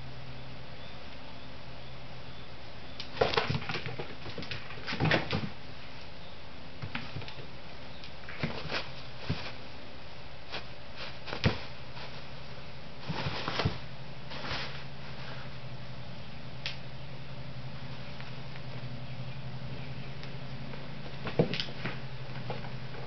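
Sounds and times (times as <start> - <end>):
low steady hum: 0.0 - 23.0
paper rustling and crumpling: 13.0 - 14.9.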